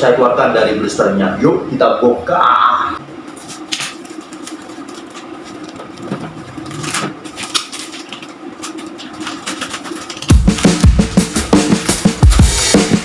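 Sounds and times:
steady low hum: 0.0 - 13.0
plastic crinkling and tearing: 3.3 - 11.0
background music with drums: 10.3 - 13.0.

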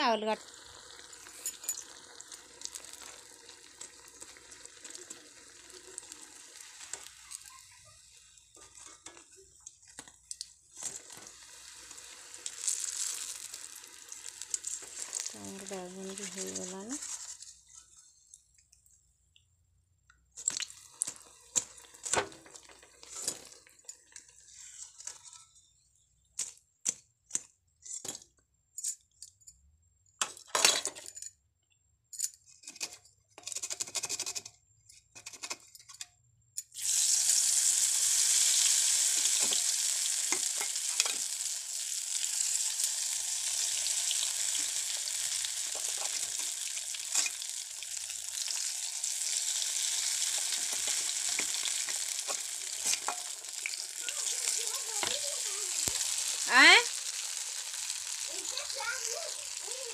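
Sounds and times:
food sizzling in a hot pan: 0.0 - 18.3, 20.5 - 25.5, 36.8 - 59.9
kitchen utensils clinking: 1.3 - 2.1, 30.4 - 31.4, 40.2 - 41.3, 44.5 - 47.6, 49.8 - 55.2.

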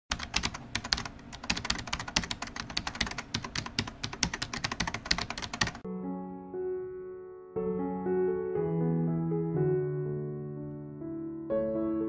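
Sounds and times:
keyboard typing: 0.1 - 5.8
electric piano music: 0.3 - 12.0.

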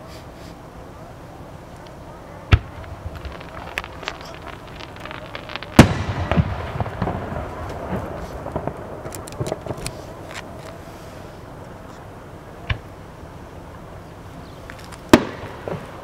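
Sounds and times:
firework shells bursting: 2.5 - 10.6
firework pops and crackles: 2.5 - 10.8, 14.6 - 16.0.

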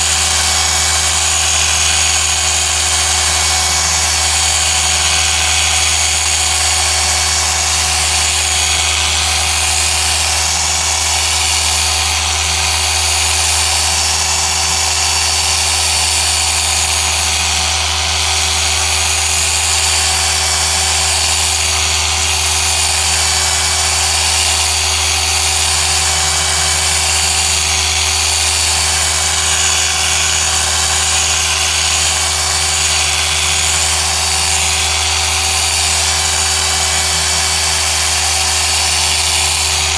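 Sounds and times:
polisher motor whine: 0.0 - 39.9.

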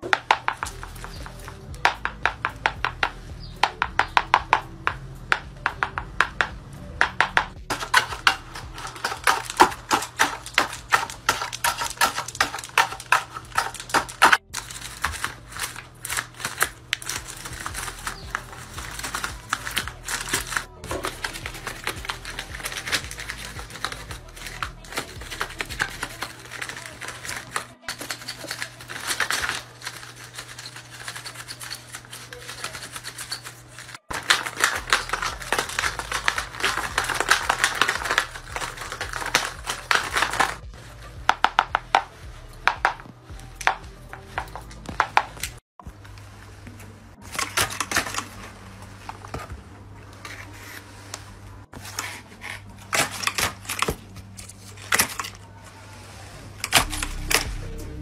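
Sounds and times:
low steady hum: 0.0 - 58.0
paper clicks snips and rustles: 5.3 - 40.6, 47.2 - 49.6, 50.2 - 55.4.

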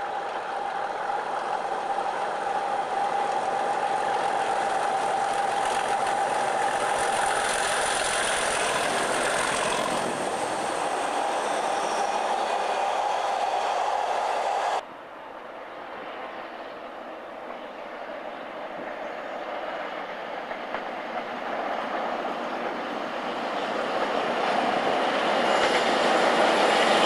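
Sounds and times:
diesel locomotives whistling engine: 0.0 - 27.0.

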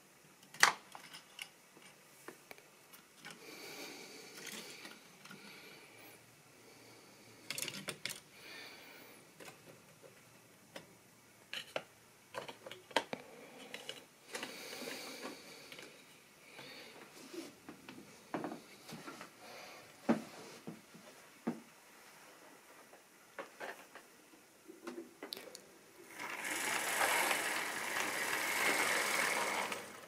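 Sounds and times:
model train wheels clicking: 26.0 - 30.0.

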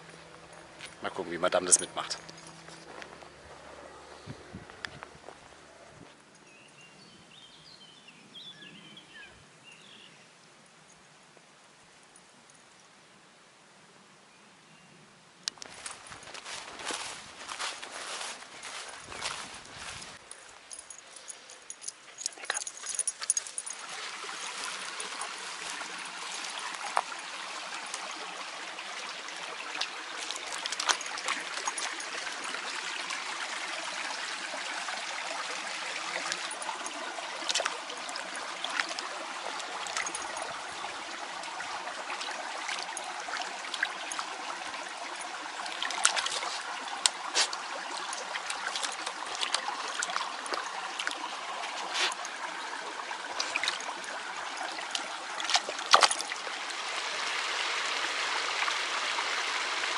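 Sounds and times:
brook trickling over stones: 0.0 - 10.1, 15.5 - 59.9
dog splashing through water: 29.6 - 33.1, 35.4 - 40.8, 45.2 - 57.0.

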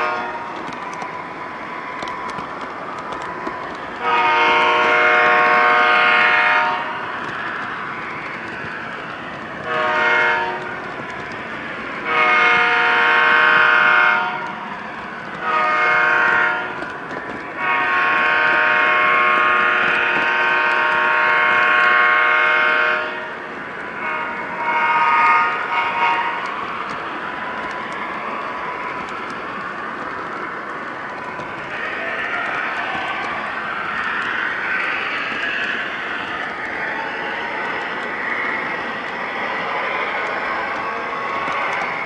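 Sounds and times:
model train running noise: 0.0 - 42.0
model train air horn blasts: 4.0 - 6.9, 9.7 - 10.6.

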